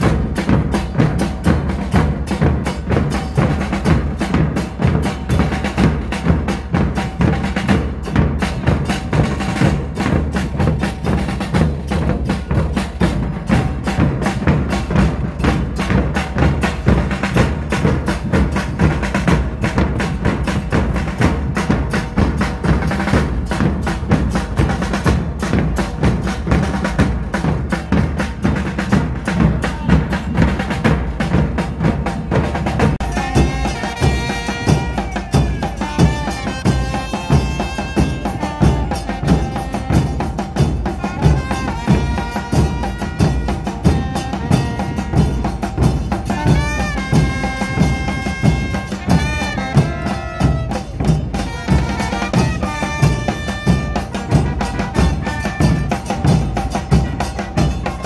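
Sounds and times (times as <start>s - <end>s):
bass drums pounding: 0.0s - 58.0s
cymbals clashing: 0.0s - 58.0s
trumpets playing melody: 26.8s - 58.0s.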